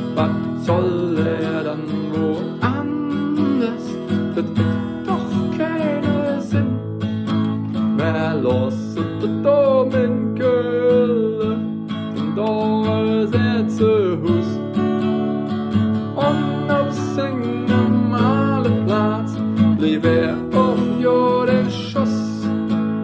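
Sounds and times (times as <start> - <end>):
man singing: 0.0 - 6.8, 7.8 - 15.3, 16.1 - 22.6
acoustic guitar strumming: 0.0 - 23.0.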